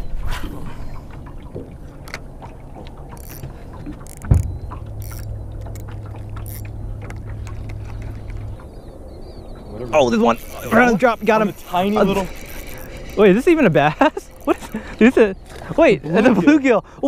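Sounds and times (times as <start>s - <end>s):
electric trolling motor humming: 1.2s - 16.8s
fishing reel clicks: 3.1s - 3.4s, 4.0s - 6.6s, 10.2s - 14.8s.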